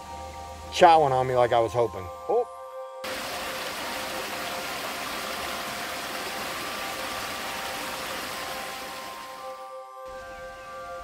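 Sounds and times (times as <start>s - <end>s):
faint background music: 0.0s - 11.0s
stream water flowing: 3.0s - 11.0s.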